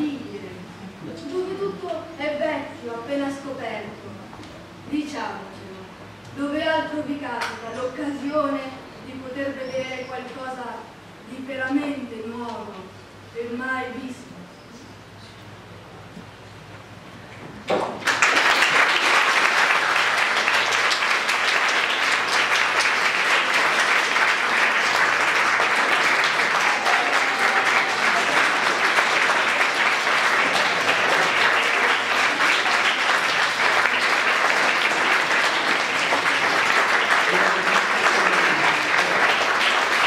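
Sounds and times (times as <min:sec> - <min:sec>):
audience applause: 0:18.0 - 0:40.0.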